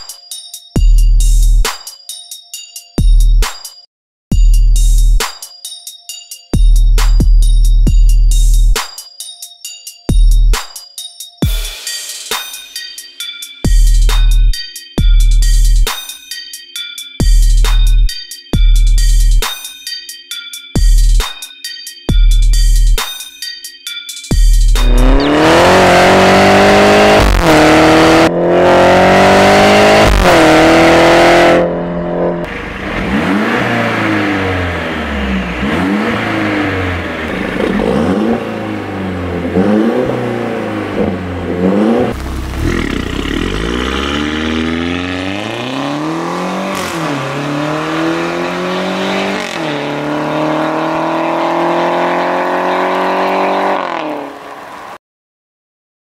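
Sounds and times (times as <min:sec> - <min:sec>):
car exhaust revving: 0:24.7 - 0:54.4.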